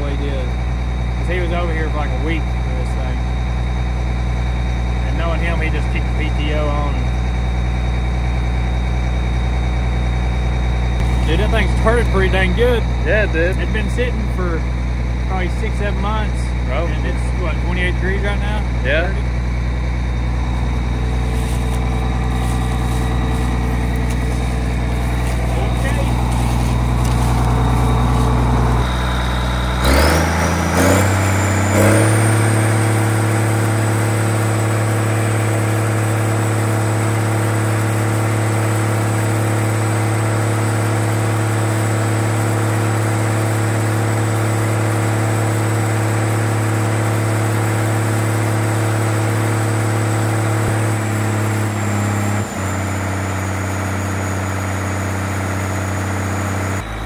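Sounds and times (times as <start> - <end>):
high engine whine: 0.0 - 57.0
tractor diesel engine revving: 0.0 - 57.0.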